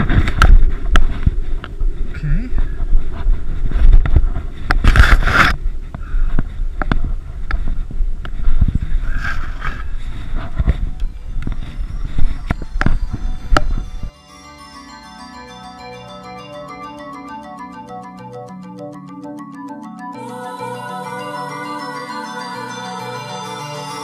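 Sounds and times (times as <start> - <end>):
short scraping rush: 0.0 - 11.0
low rumble on microphone: 0.0 - 14.1.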